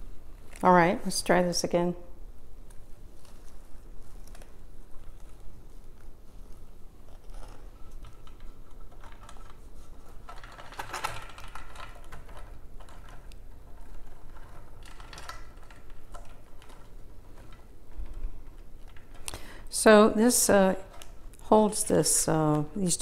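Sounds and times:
plant material rustling: 2.7s - 8.0s.

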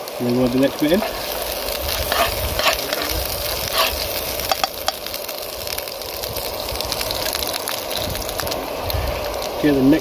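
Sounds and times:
onions sizzling in oil: 0.0s - 10.0s
metal spoon scraping a pan: 1.0s - 3.1s, 3.7s - 5.0s.

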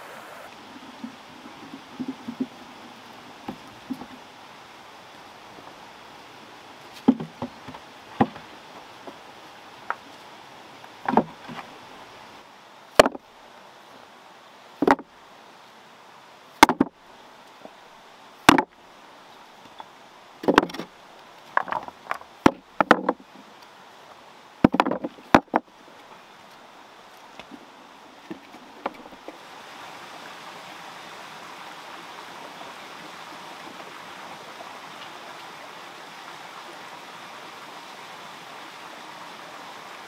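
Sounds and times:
steady background hiss: 0.0s - 40.0s
stones knocking on wood: 7.0s - 9.2s, 11.0s - 11.7s, 13.0s - 13.2s, 14.8s - 15.1s, 16.6s - 17.0s, 18.5s - 18.7s, 20.4s - 20.9s, 21.5s - 23.2s, 24.6s - 25.7s, 28.3s - 29.3s.

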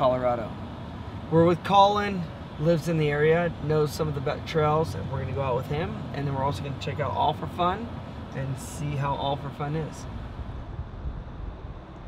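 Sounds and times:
vehicle rumbling: 0.0s - 12.0s
wind noise on microphone: 10.1s - 12.0s.

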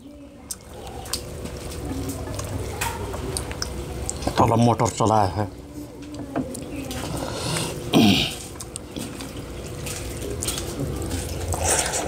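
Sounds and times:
chewing and smacking: 0.4s - 5.2s, 6.0s - 12.0s
slurp: 10.3s - 12.0s.

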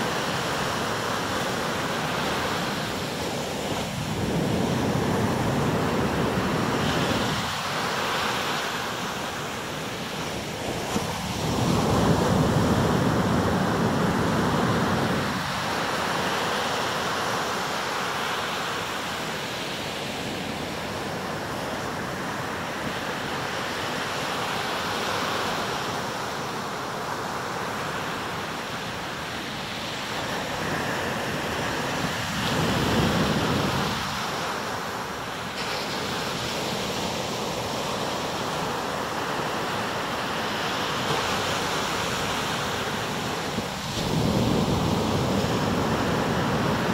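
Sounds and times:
surf breaking on beach: 29.7s - 46.9s.

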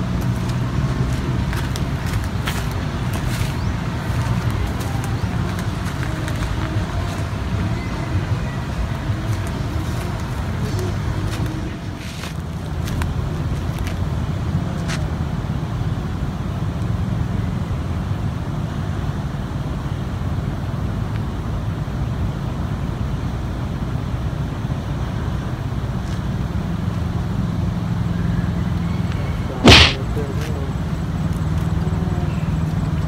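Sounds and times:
low outdoor rumble: 0.0s - 18.1s.

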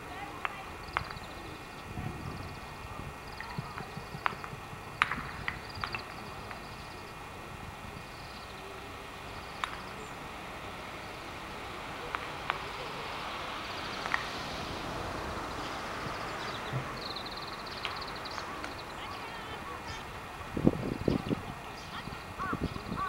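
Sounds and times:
low rush of noise: 0.0s - 23.0s
sharp ticks: 0.4s - 1.8s, 3.4s - 6.8s, 9.6s - 9.9s, 17.1s - 18.9s
small birds trilling: 13.5s - 20.2s, 20.9s - 23.0s.

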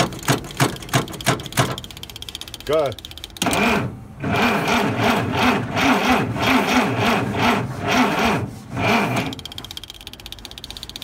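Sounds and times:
truck engine cranking on starter: 3.4s - 9.8s.

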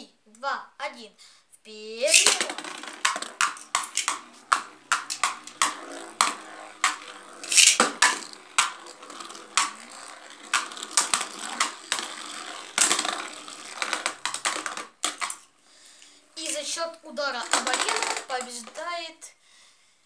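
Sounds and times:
spinning tops clacking together: 2.0s - 15.5s, 17.4s - 18.8s
faint whir of spinning tops: 2.0s - 19.3s.

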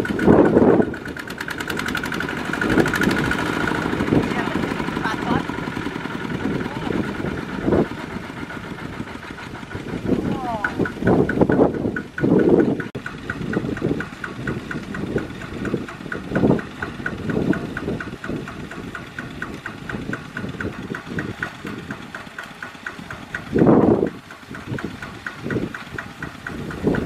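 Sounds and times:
diesel tractor engine idling: 0.0s - 27.0s.

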